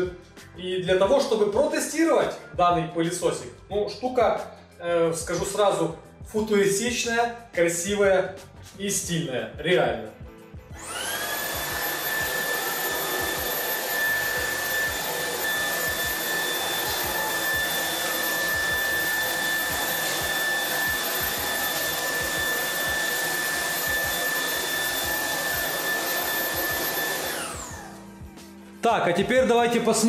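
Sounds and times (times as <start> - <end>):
stick vacuum running on a rug: 10.8 - 28.3.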